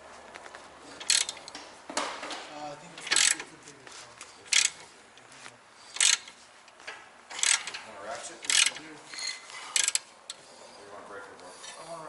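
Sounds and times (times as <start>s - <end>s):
socket ratchet clicking: 1.0s - 1.6s, 3.1s - 3.5s, 6.0s - 6.4s, 7.3s - 7.8s, 8.5s - 8.8s, 9.8s - 10.1s.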